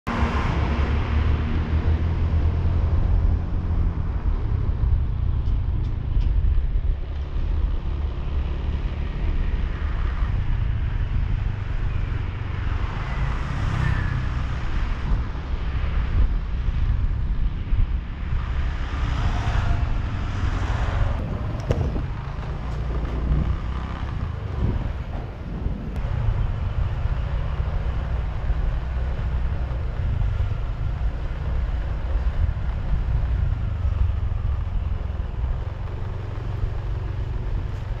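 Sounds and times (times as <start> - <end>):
passing traffic: 0.0 - 38.0
wind rumble on microphone: 0.1 - 38.0.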